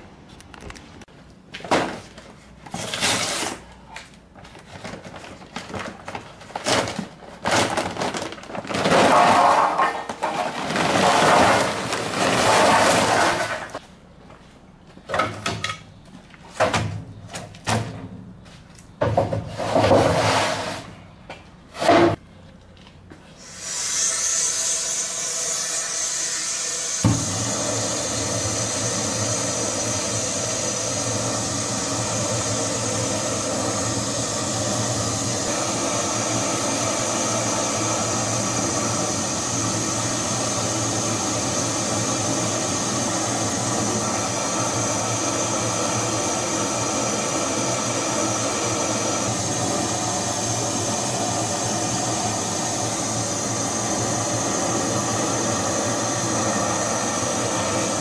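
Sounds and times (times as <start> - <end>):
gas hissing: 23.4 - 58.0
torch flame burning: 23.4 - 58.0
torch lighting with a pop: 27.0 - 27.5.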